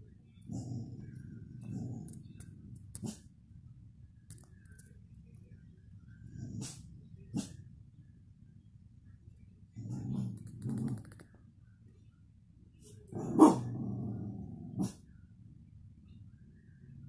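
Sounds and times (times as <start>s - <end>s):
dog growling: 0.5s - 2.2s, 9.8s - 11.1s, 13.1s - 15.0s
dog barking: 13.2s - 13.7s.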